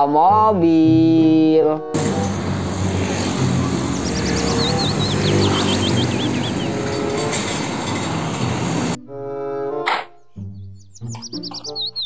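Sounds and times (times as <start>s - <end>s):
tyre noise from passing vehicles: 1.9s - 9.0s
diesel truck engine running: 2.0s - 9.0s
motor scooter passing: 2.0s - 9.0s.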